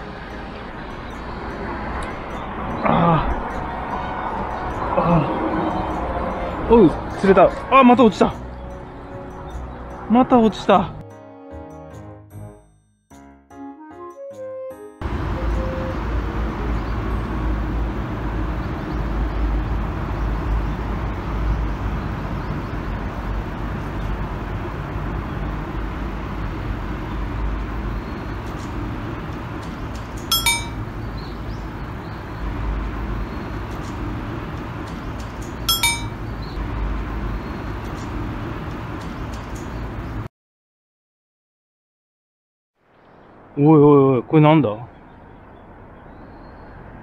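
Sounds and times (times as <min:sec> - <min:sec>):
fishing rod bite bell ringing: 0:30.3 - 0:30.8, 0:35.7 - 0:36.2.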